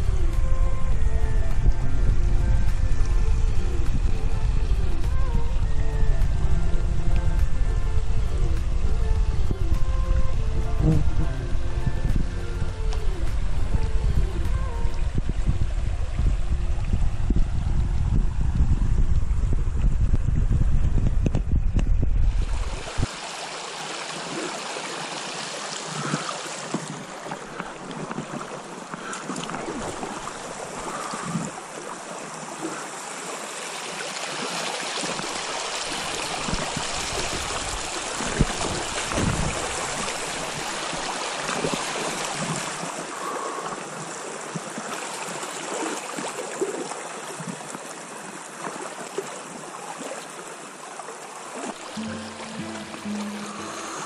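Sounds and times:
river rushing over rocks: 0:22.4 - 0:54.0.

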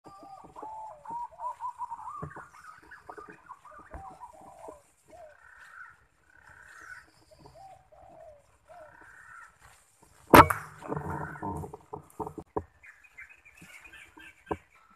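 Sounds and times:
pigeons whistling calls: 0:00.1 - 0:09.0.

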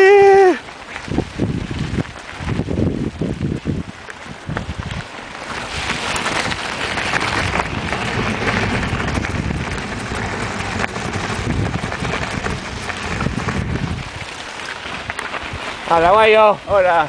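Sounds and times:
bicycle tyres crunching on gravel: 0:00.0 - 0:17.0
wind buffeting microphone: 0:00.0 - 0:17.0.

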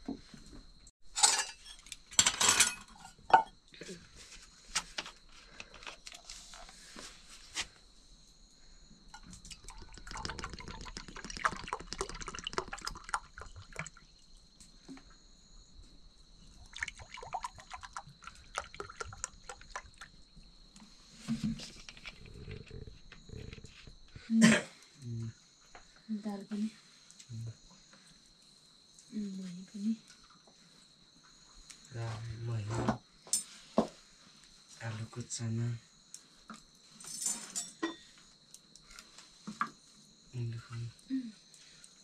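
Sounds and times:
crickets chirping: 0:00.0 - 0:42.0
cat chewing and lapping: 0:09.5 - 0:14.0, 0:16.7 - 0:20.1.

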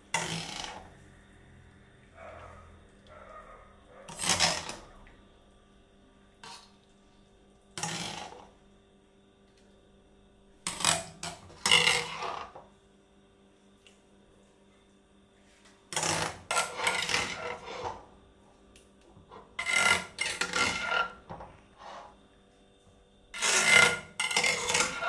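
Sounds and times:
utensils scraping steel pans: 0:10.7 - 0:12.5, 0:16.0 - 0:18.1, 0:19.3 - 0:22.2, 0:23.4 - 0:25.0.

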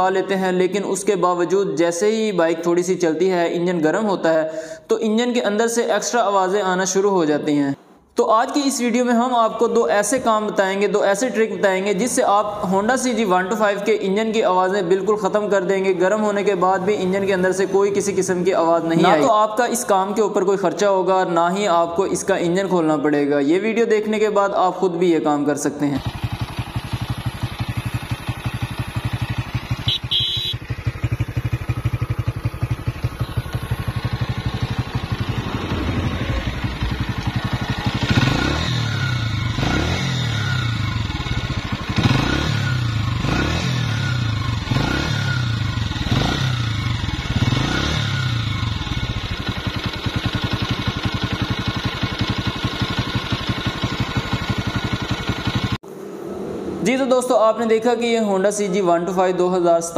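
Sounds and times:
motorcycle engine idling and revving: 0:09.7 - 0:22.8, 0:25.9 - 0:56.8
mechanical engine noise: 0:26.0 - 0:43.3, 0:53.8 - 0:57.2.

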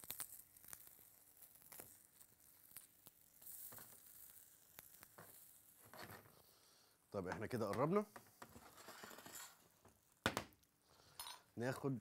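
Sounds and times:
slices sizzling in oil: 0:00.0 - 0:06.8.

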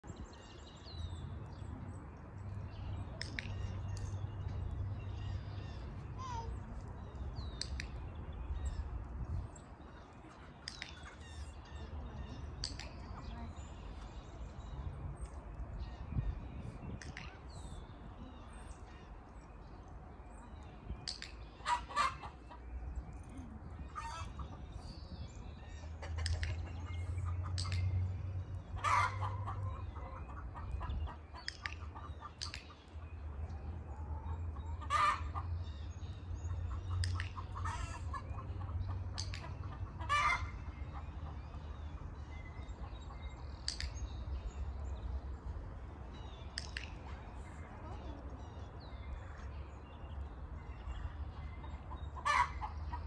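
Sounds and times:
chickens clucking: 0:21.6 - 0:22.7, 0:25.8 - 0:28.1, 0:28.7 - 0:32.7, 0:33.5 - 0:35.6, 0:36.5 - 0:41.4, 0:51.6 - 0:53.0.

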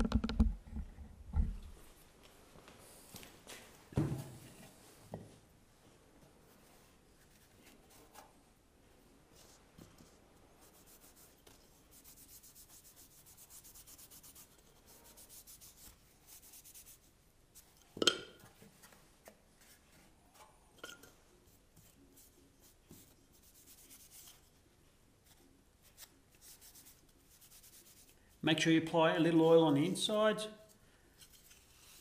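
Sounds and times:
cloth rag rubbing wood: 0:09.4 - 0:17.6.

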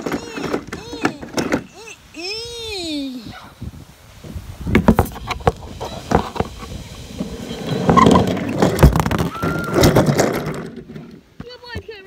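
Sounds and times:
phone microphone handling noise: 0:04.2 - 0:11.9.

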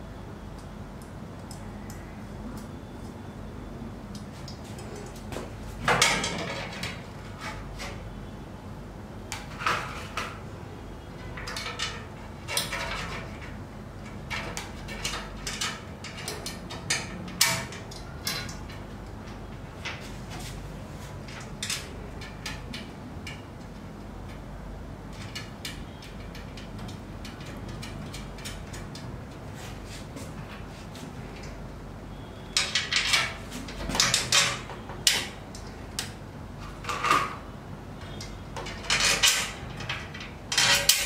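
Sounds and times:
metal parts clanking and knocking: 0:05.9 - 0:07.9, 0:11.2 - 0:20.0, 0:32.6 - 0:35.4, 0:38.2 - 0:41.0.

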